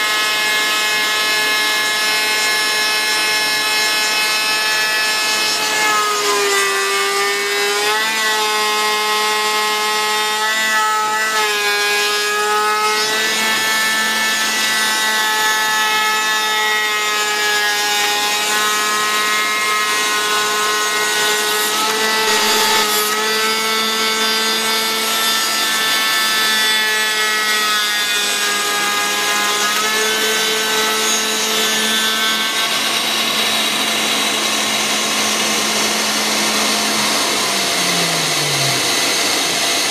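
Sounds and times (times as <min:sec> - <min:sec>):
router spindle whining: 0:10.1 - 0:39.9
bit rasping through wood: 0:10.4 - 0:39.9.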